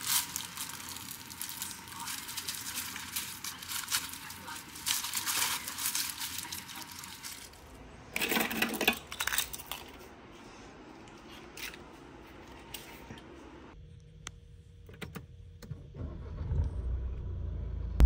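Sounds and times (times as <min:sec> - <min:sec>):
rustling handling noise: 0:00.0 - 0:13.6.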